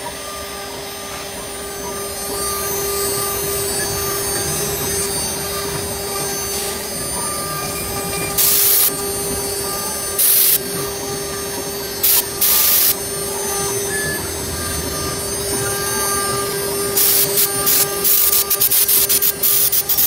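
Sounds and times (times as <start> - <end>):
router spindle whining: 0.0 - 20.0
loud bursts of hiss: 8.3 - 9.0, 9.7 - 10.8, 12.0 - 13.0, 16.8 - 20.0.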